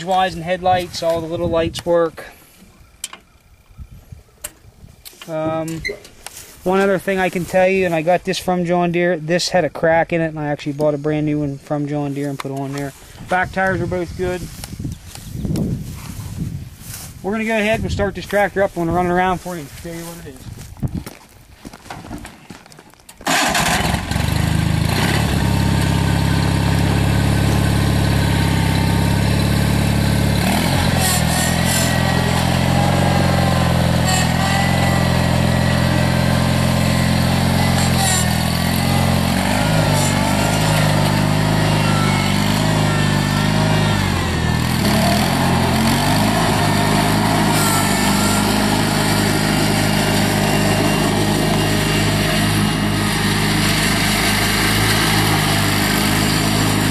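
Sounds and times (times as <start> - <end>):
garden tractor engine running: 0.0 - 3.7, 21.8 - 56.9.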